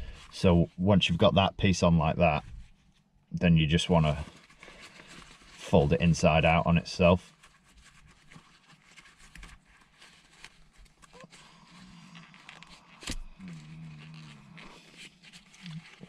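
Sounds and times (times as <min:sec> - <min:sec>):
fabric rustling: 0:04.1 - 0:05.8, 0:07.2 - 0:16.0.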